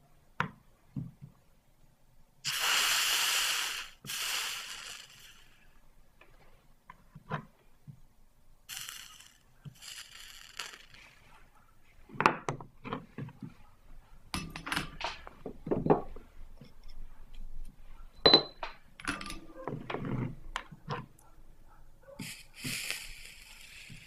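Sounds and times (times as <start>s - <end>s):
sharp ringing metal clink: 18.2s - 18.6s.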